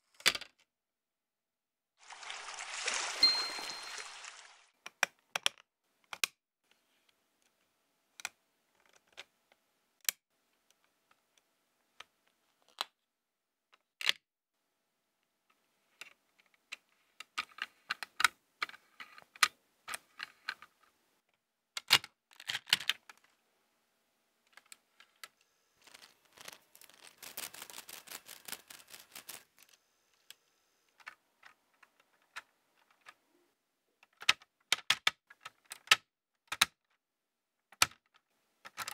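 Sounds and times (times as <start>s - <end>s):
plastic parts clicking together: 4.8s - 6.4s, 7.4s - 13.0s, 13.7s - 14.2s, 16.0s - 23.3s, 34.0s - 37.0s, 37.7s - 38.9s
plastic parts clattering: 21.8s - 23.3s, 24.5s - 33.2s, 37.8s - 38.9s.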